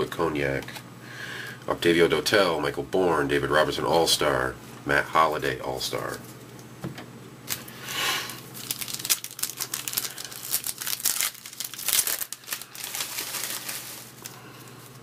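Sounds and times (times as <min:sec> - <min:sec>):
foil wrapper crinkling and tearing: 0:07.5 - 0:15.0.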